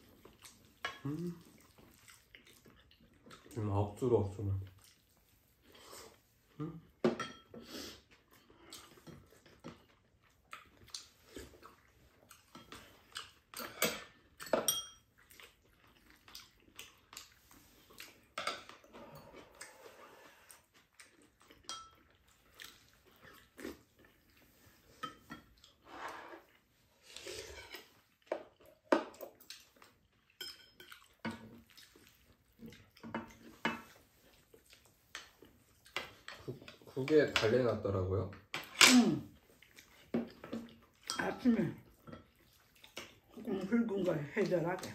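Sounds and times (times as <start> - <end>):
utensils clinking on ceramic bowls: 13.5 - 15.1, 21.6 - 22.1, 30.4 - 31.4, 40.5 - 42.3.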